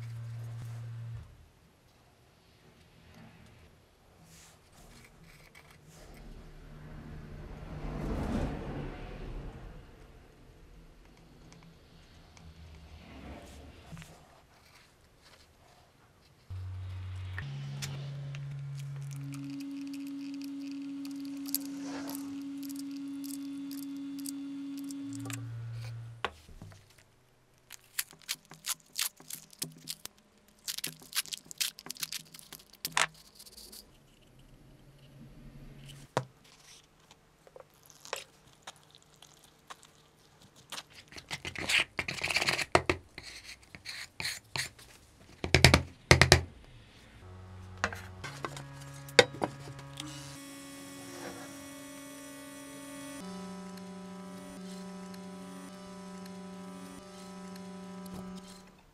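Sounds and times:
hand scraping and scratching: 4.2 - 6.5, 27.7 - 34.5.

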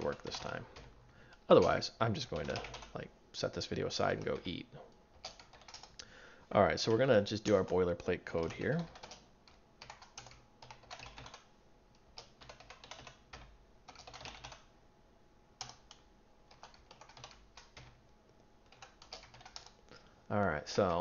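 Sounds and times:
computer keyboard typing: 0.0 - 3.0, 5.2 - 6.0, 6.8 - 11.5, 12.1 - 14.7, 15.6 - 18.0, 18.6 - 19.8.

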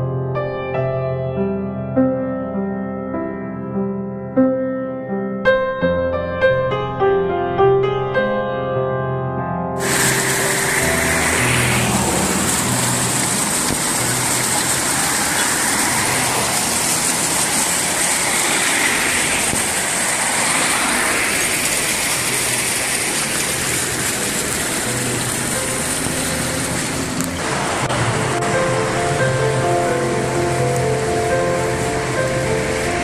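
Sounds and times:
cars passing on road: 9.8 - 33.0
steady traffic hiss: 9.8 - 33.0.

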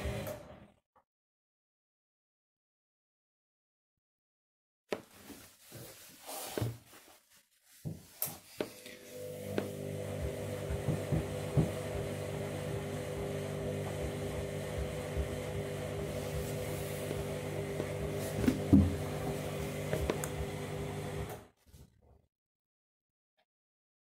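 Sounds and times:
washing machine humming: 0.0 - 0.6, 8.7 - 21.5.

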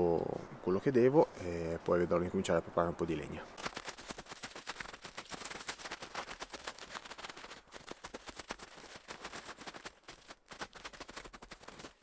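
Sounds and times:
snow crunching underfoot: 3.6 - 12.0.

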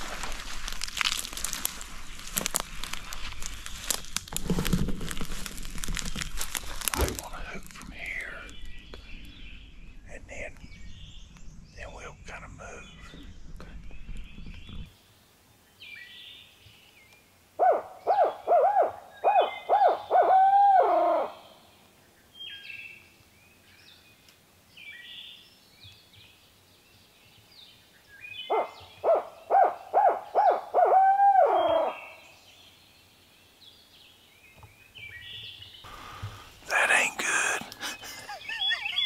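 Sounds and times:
songbird chirps: 6.5 - 18.4, 21.3 - 30.7, 31.5 - 39.0
imitated owl hoots: 17.6 - 21.4, 28.5 - 32.1.

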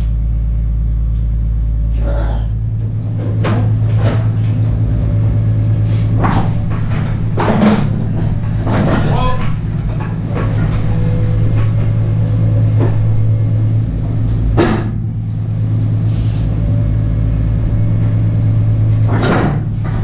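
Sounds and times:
vehicle engine idling: 0.0 - 20.0.

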